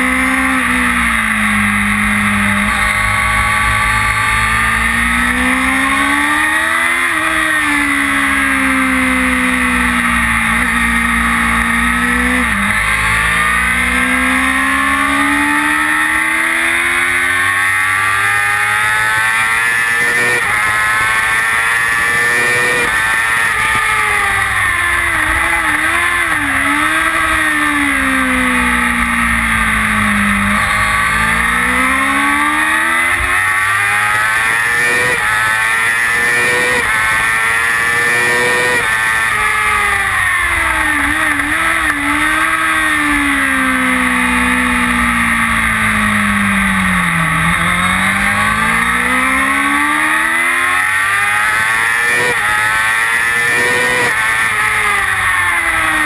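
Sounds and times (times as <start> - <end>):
motorcycle engine revving through gears: 0.0 - 56.0.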